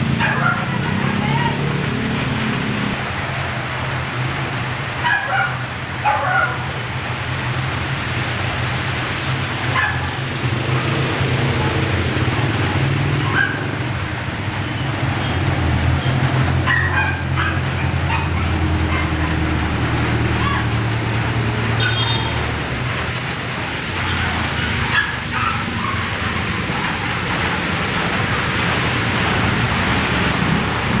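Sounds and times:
truck and car engines: 0:00.0 - 0:31.0
tyres hissing on wet road: 0:00.0 - 0:31.0
dog barking: 0:00.2 - 0:00.9, 0:05.0 - 0:06.7, 0:09.7 - 0:10.2, 0:13.2 - 0:13.8, 0:16.6 - 0:19.5, 0:24.1 - 0:26.3.

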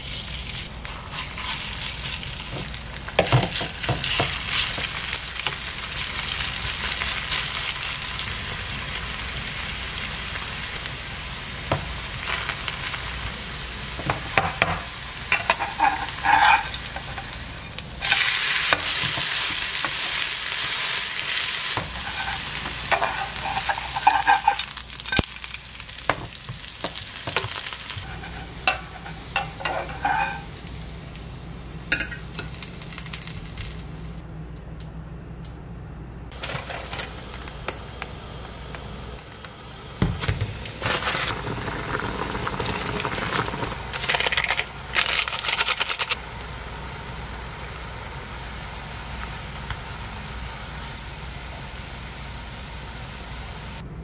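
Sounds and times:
batter sizzling in hot oil: 0:00.0 - 0:34.2, 0:40.0 - 0:53.8
spatula scraping and tapping pan: 0:26.8 - 0:30.5.

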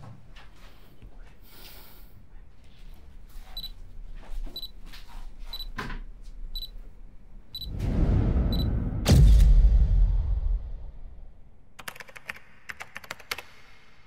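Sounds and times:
camera self-timer beeping: 0:03.6 - 0:03.8, 0:05.5 - 0:05.7, 0:06.6 - 0:06.8.

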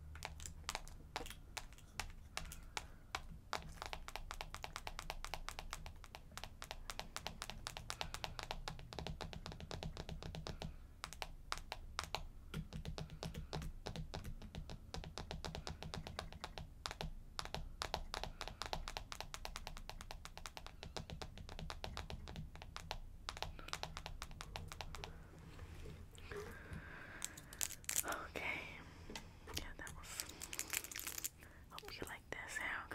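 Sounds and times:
fast tapping on camera: 0:00.0 - 0:25.2.

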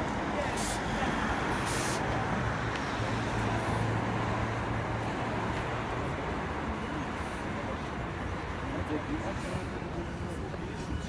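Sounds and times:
vehicles passing: 0:00.0 - 0:11.0
brief hiss: 0:01.6 - 0:02.0.

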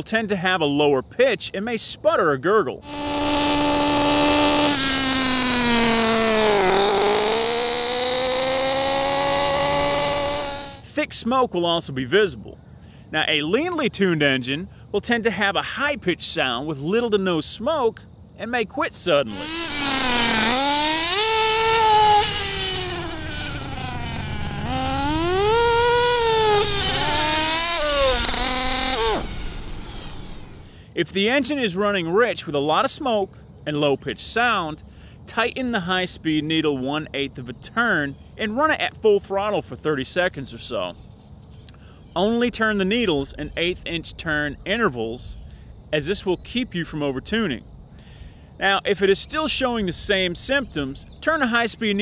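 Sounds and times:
model engine droning: 0:02.8 - 0:10.9, 0:19.3 - 0:30.8.

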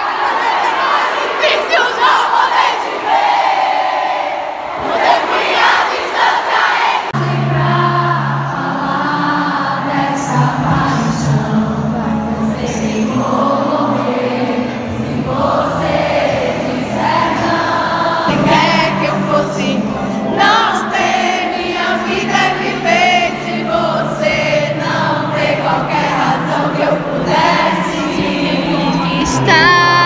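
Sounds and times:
crowd singing along: 0:00.0 - 0:30.0
band playing live pop: 0:22.1 - 0:30.0.

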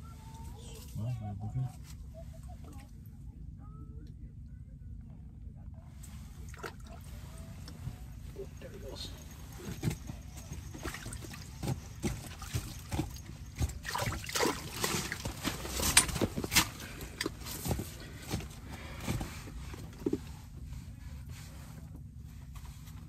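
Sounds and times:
water splashing and trickling: 0:10.5 - 0:16.1.

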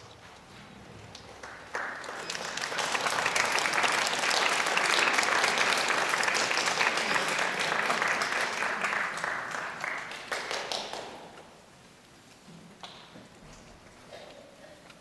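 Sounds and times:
audience applauding: 0:01.3 - 0:11.4.

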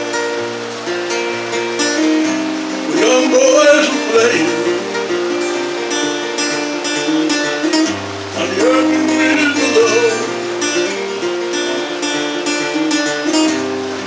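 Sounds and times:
acoustic guitar chords: 0:00.0 - 0:14.0
person singing: 0:02.6 - 0:13.6.

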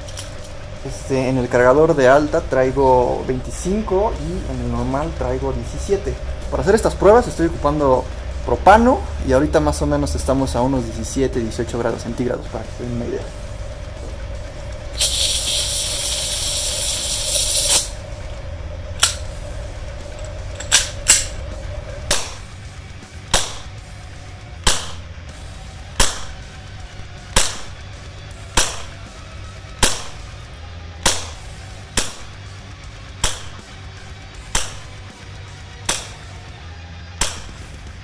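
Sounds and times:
gas hissing into pistol: 0:14.8 - 0:18.0
airsoft pistol shots: 0:22.1 - 0:22.5, 0:23.3 - 0:23.8, 0:24.6 - 0:25.1, 0:26.0 - 0:26.4, 0:27.3 - 0:27.8, 0:28.6 - 0:29.0, 0:29.8 - 0:30.3, 0:31.0 - 0:32.4, 0:33.2 - 0:33.6, 0:34.5 - 0:34.9, 0:35.8 - 0:36.3, 0:37.2 - 0:37.6.

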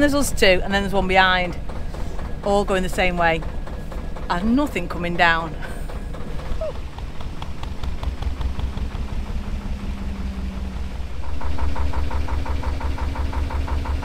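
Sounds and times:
diesel engine running: 0:00.0 - 0:14.0.

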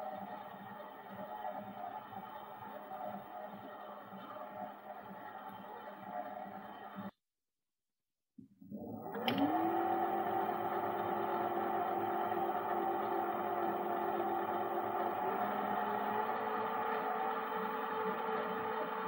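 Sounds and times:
lathe motor whine: 0:08.7 - 0:19.0
lathe start click: 0:08.7 - 0:19.0.

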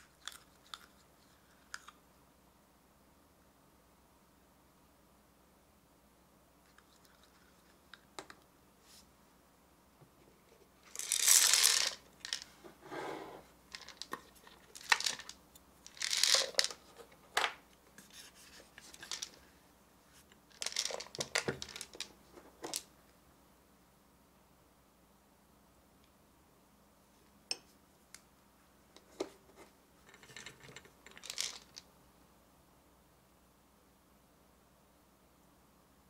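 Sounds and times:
plastic toy parts scraping and clicking: 0:13.8 - 0:17.2, 0:30.0 - 0:31.8.

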